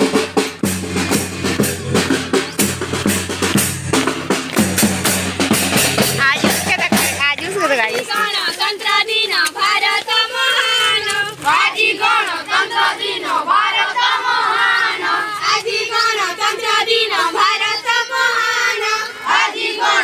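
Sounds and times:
children chanting in unison: 0:08.1 - 0:20.0.

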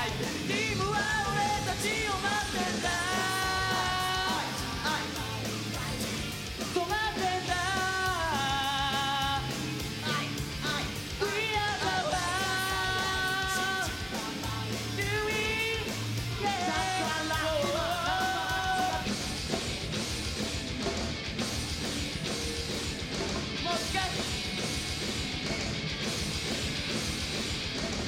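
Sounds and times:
men singing: 0:00.0 - 0:19.2
rock band playing: 0:00.0 - 0:28.0.

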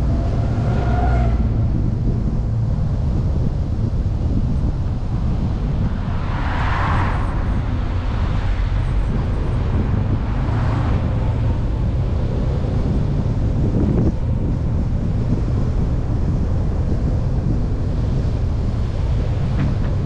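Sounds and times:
cars whooshing past: 0:00.0 - 0:02.6, 0:04.9 - 0:14.0
car driving rumble: 0:00.0 - 0:20.0
wind noise on microphone: 0:00.0 - 0:20.0.

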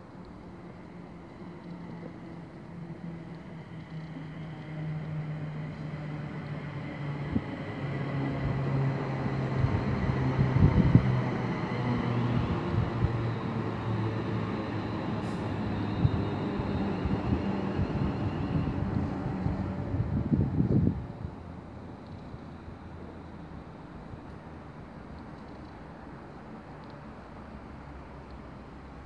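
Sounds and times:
train pulling in: 0:00.0 - 0:29.0.

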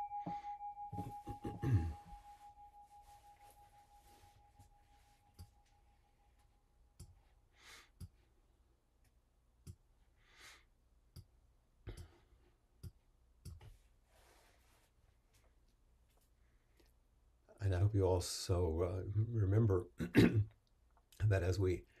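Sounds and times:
bell tone: 0:00.0 - 0:06.7.

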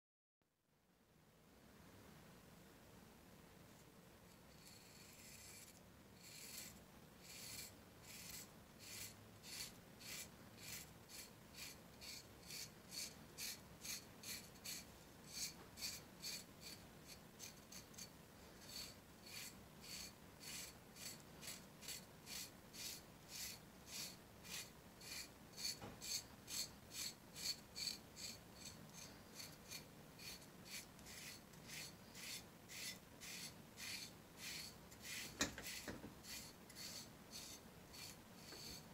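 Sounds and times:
knife scraping skin: 0:04.6 - 0:38.9.

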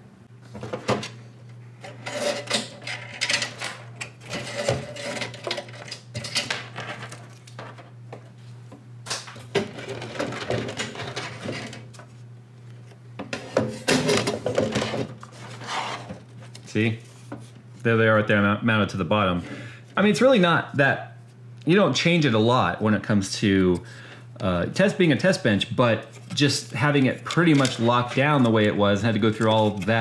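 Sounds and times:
steady low hum: 0:00.0 - 0:30.0
rubbing and scraping of metal tray: 0:01.8 - 0:07.1, 0:13.4 - 0:16.2.

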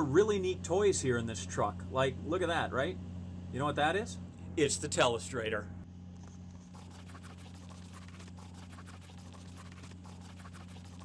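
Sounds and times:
steady low hum: 0:00.0 - 0:11.0
fingertip scratching touchscreen: 0:06.4 - 0:11.0.

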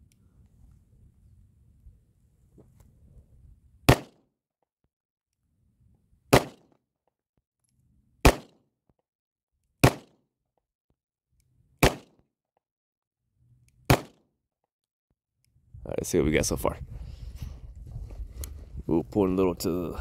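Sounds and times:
pistol shots: 0:03.9 - 0:04.2, 0:06.3 - 0:06.7, 0:08.2 - 0:08.6, 0:09.8 - 0:10.2, 0:11.8 - 0:12.2, 0:13.9 - 0:14.2.

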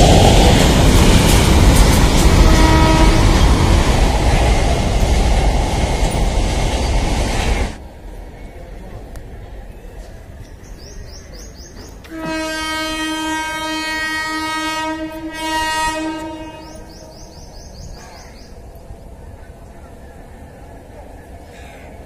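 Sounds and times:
locomotive horn blast: 0:02.3 - 0:03.5, 0:12.1 - 0:16.9.

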